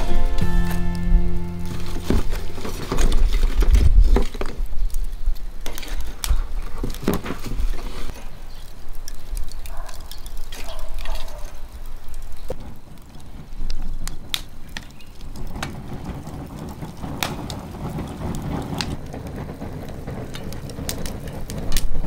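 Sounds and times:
fire crackling and popping: 0.0s - 22.0s
wind rumble on microphone: 1.0s - 8.1s, 12.5s - 22.0s.

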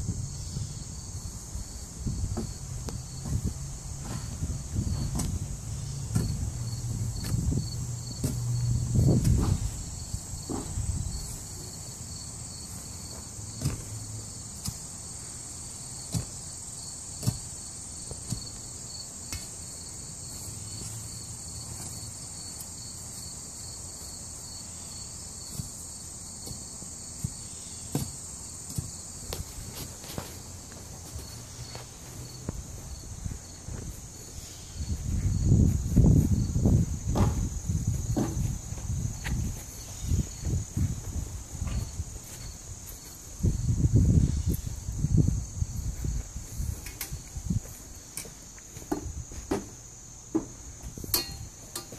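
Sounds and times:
high-pitched insect chorus: 0.0s - 51.9s
steel bar knocking into soil: 51.1s - 51.9s.

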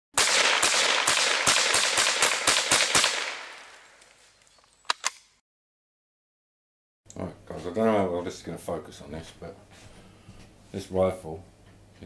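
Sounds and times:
rapid sharp cracks: 0.2s - 4.2s.

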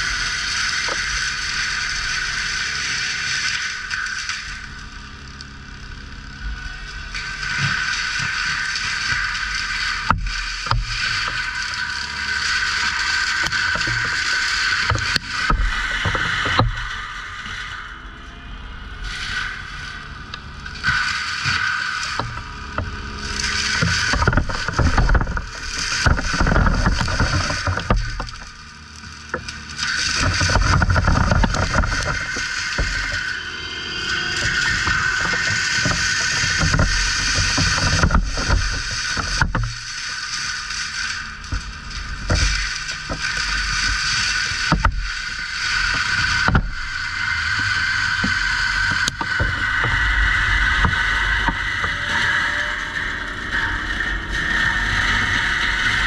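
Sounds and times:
diesel engine revving: 0.0s - 56.0s
metal clanks and scrapes: 19.0s - 56.0s
machine knocks and clanks: 22.1s - 28.6s, 29.3s - 33.4s, 34.0s - 40.0s.

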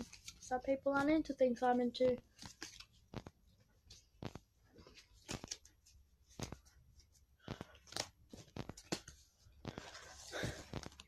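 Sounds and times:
cards rustling slide: 2.3s - 3.4s, 7.5s - 11.0s
cards tapped into stacks: 6.3s - 6.7s, 7.4s - 10.0s.

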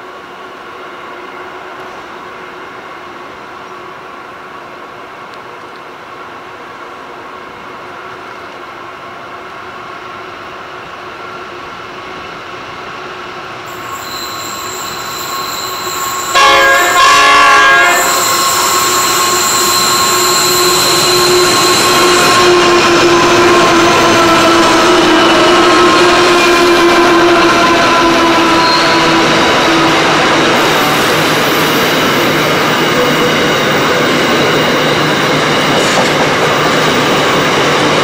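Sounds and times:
diesel locomotives running: 10.7s - 38.0s
high steady squeal: 13.7s - 38.0s
multi-note train horn: 13.8s - 30.0s.

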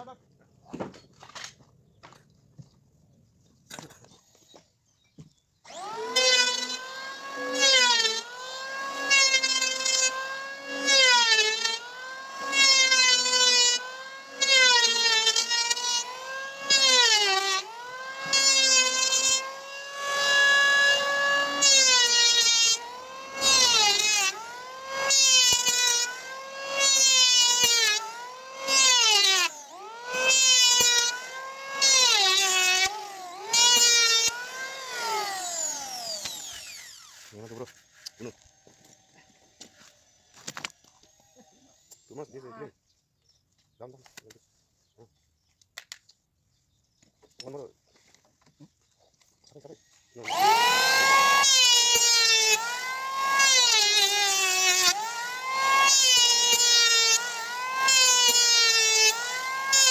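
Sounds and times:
electric planer cutting wood: 5.6s - 42.1s, 50.1s - 59.9s.

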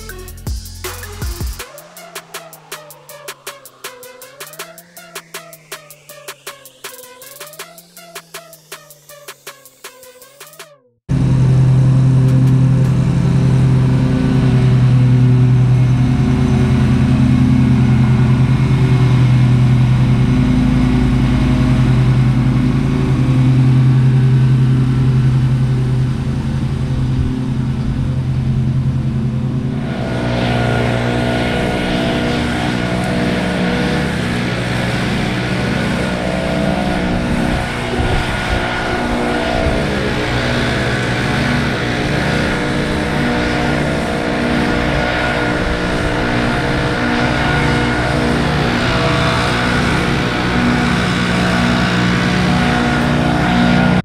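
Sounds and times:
small petrol engines humming: 0.0s - 54.0s
leaf blower hissing whine: 11.1s - 54.0s.

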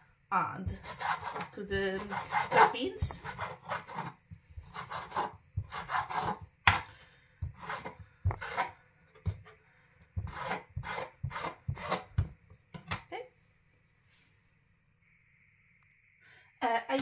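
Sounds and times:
knife cutting on chopping board: 0.7s - 6.8s, 7.4s - 9.5s, 10.2s - 12.3s.

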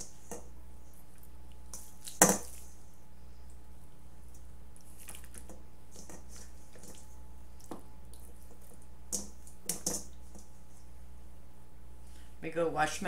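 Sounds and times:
faint low hum: 0.0s - 13.0s
wet squelches of chicken handled: 4.8s - 5.5s.

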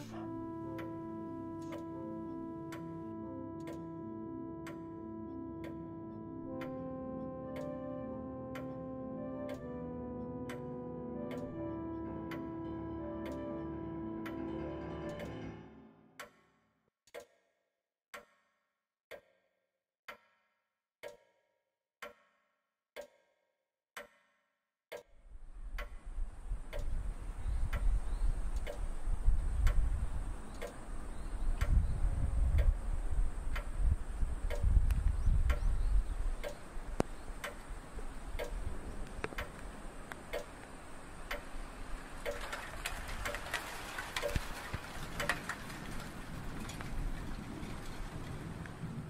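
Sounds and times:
clock ticking: 0.0s - 15.5s, 16.2s - 16.4s, 17.1s - 17.4s, 18.1s - 18.4s, 19.1s - 19.4s, 21.0s - 21.3s, 22.0s - 22.3s, 23.0s - 23.2s, 24.0s - 24.2s, 24.9s - 32.8s, 33.5s - 43.6s, 44.2s - 44.5s.

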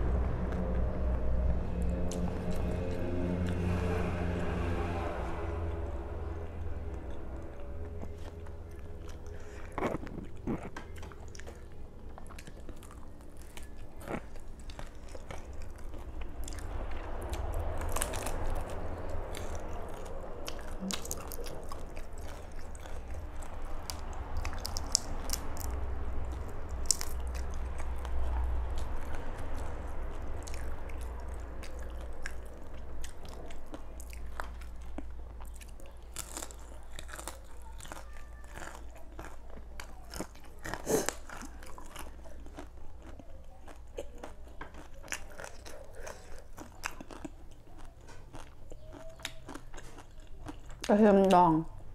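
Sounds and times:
wet chewing: 6.2s - 51.9s
crunching bites: 17.2s - 50.9s.

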